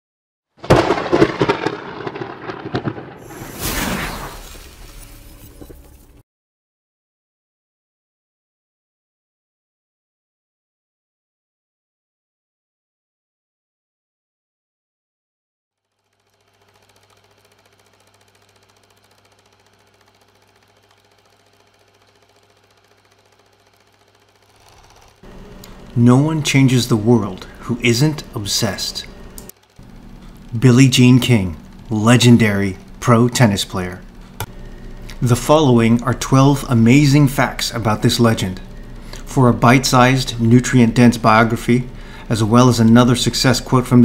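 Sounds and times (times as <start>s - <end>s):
crackling sparking pops: 0.6s - 6.2s
film projector clattering: 15.8s - 44.0s
low hum: 24.8s - 44.0s.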